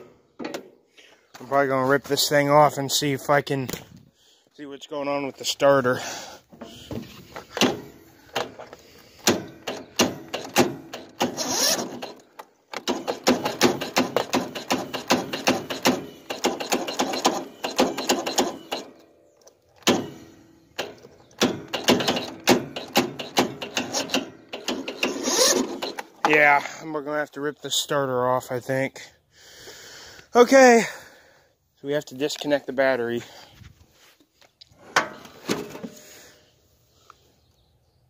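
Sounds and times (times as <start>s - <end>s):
electric starter clicking: 9.2s - 19.0s, 20.8s - 26.2s.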